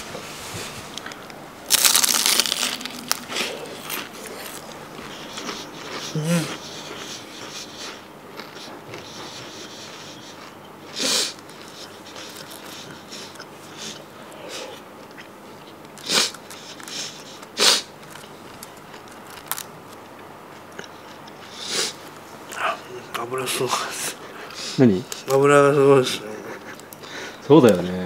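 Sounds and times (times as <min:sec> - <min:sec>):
faint steady background noise: 0:00.0 - 0:28.0
crunching of crisp fried food: 0:01.0 - 0:09.4, 0:15.0 - 0:23.2.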